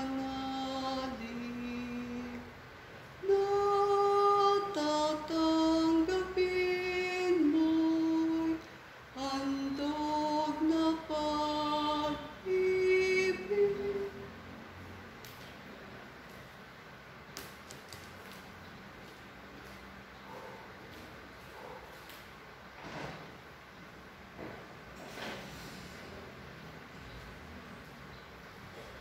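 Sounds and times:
woman singing a hymn: 0.0 - 2.6, 3.2 - 14.5.

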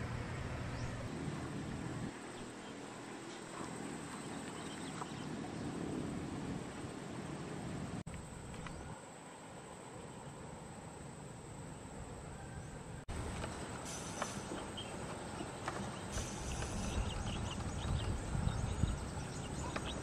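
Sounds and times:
steady low hiss: 5.3 - 20.0.

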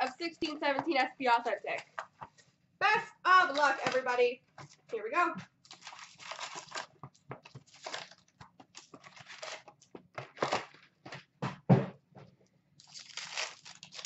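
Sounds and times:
wrappers crinkling and tearing: 5.6 - 10.8, 12.8 - 14.0.

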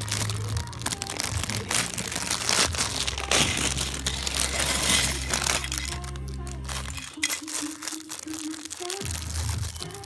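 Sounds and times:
packaging crinkling and crunching: 0.0 - 10.0.

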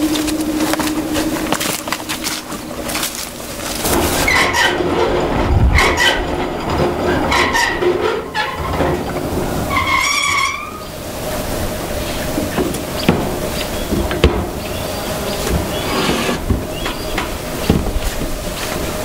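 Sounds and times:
grinding rumble: 0.0 - 19.0
raspy pitched squeals: 9.6 - 11.0, 12.9 - 17.2.

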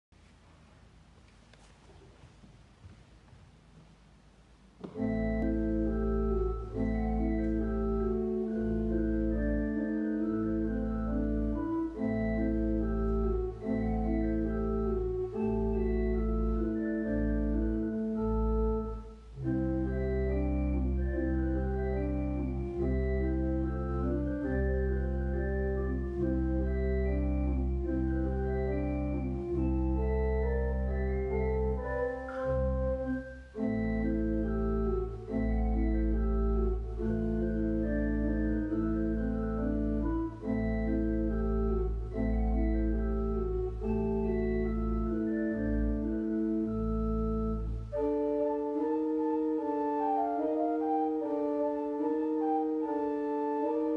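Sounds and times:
church organ playing: 4.8 - 53.9.

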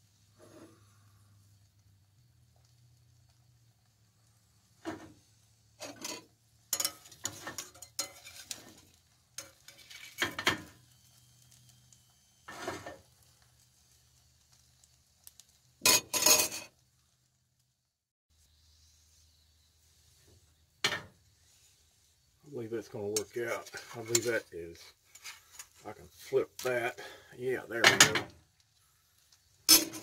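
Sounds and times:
faint sizzle: 0.0 - 30.0
metal turner scraping a frying pan: 0.3 - 1.0, 4.8 - 11.6, 12.5 - 13.9, 14.5 - 16.8, 22.8 - 30.0.

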